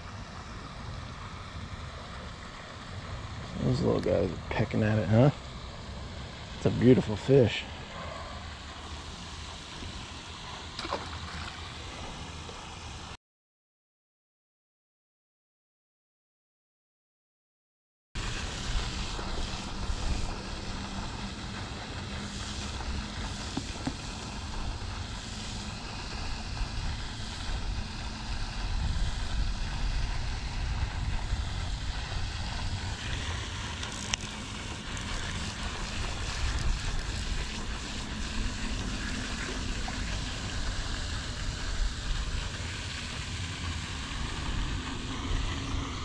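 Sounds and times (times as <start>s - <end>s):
fountain water splashing: 0.0s - 13.1s, 18.2s - 46.0s
wind rumbling on microphone: 18.2s - 46.0s.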